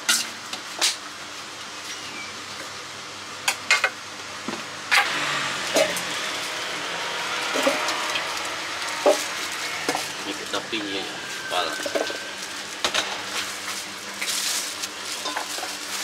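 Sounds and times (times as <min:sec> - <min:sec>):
scraping rustle: 0:11.2 - 0:16.0.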